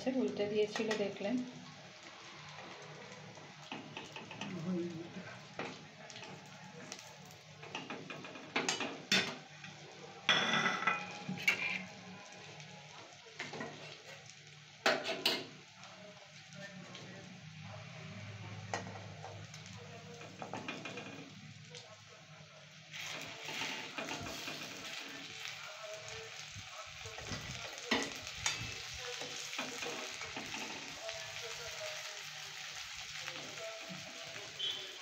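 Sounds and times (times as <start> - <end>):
fritters sizzling in oil: 0.0 - 35.0
metal spatula scraping a wok: 11.0 - 11.9, 22.9 - 25.1.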